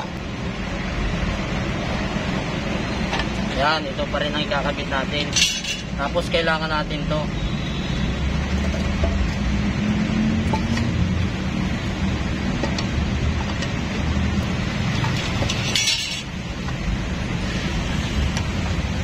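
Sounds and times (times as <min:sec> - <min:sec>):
metal parts clicking: 0:05.3 - 0:05.9, 0:15.0 - 0:16.3
metal-on-metal clink: 0:05.3 - 0:06.0, 0:15.0 - 0:16.4.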